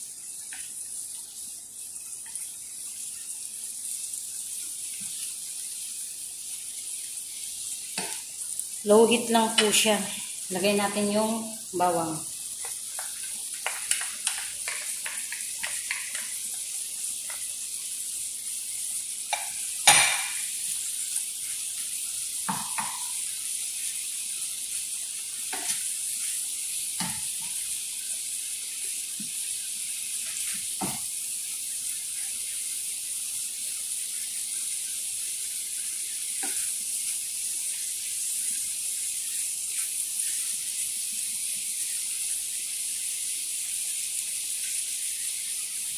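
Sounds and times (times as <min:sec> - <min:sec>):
food sizzling in a frying pan: 0:00.0 - 0:45.9
wooden spatula knocking on pan: 0:12.6 - 0:16.4, 0:22.5 - 0:23.2.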